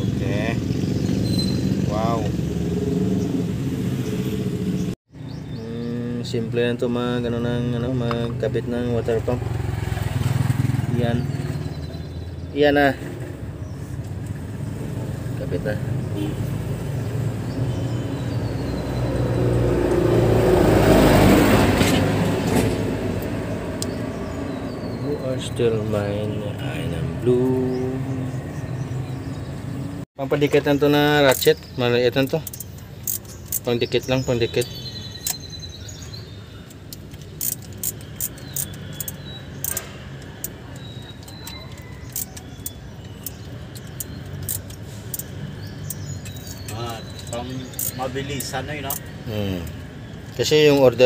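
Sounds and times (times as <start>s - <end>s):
vehicle passing by: 9.2s - 11.8s, 14.5s - 24.9s
socket ratchet clicking: 32.4s - 33.7s, 36.6s - 49.1s.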